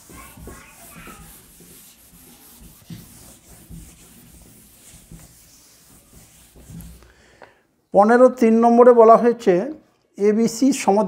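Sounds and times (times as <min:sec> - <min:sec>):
pen scratching on paper: 0:00.0 - 0:07.0.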